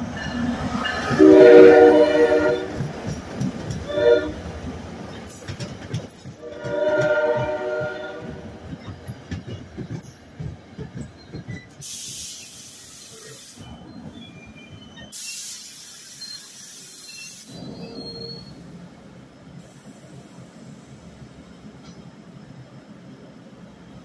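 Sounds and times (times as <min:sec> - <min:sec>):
locomotive horn chord: 0:01.2 - 0:02.8, 0:03.9 - 0:04.4, 0:06.6 - 0:08.4
air brakes hissing: 0:11.8 - 0:13.8, 0:15.0 - 0:18.7, 0:19.6 - 0:21.1.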